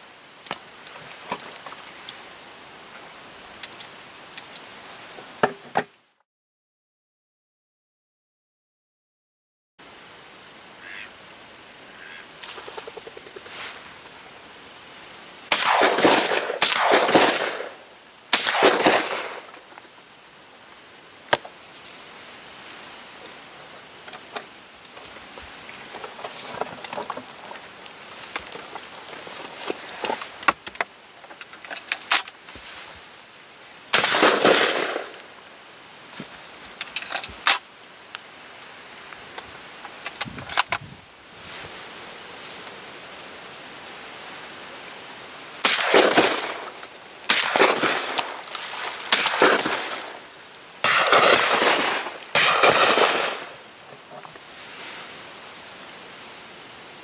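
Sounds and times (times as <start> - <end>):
distant shotgun cracks: 15.5 - 19.6, 33.9 - 35.3, 45.6 - 53.6
shotgun shots: 15.5 - 19.6, 33.9 - 35.2, 45.6 - 48.4, 49.0 - 50.2, 50.8 - 53.6.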